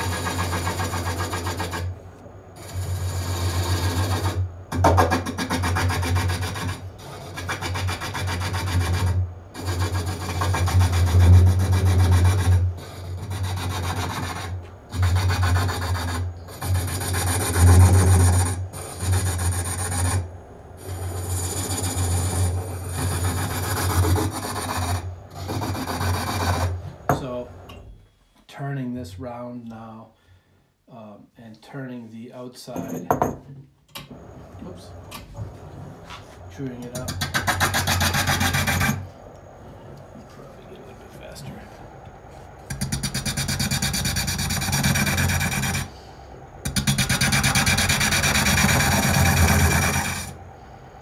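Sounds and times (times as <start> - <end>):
hook tool cutting spinning wood: 36.8 - 39.0, 42.7 - 45.9, 46.7 - 50.3.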